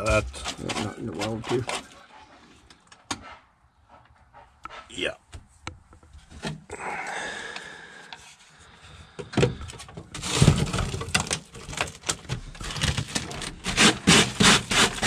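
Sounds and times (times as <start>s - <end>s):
hands scraping rust on metal: 0.0s - 3.5s.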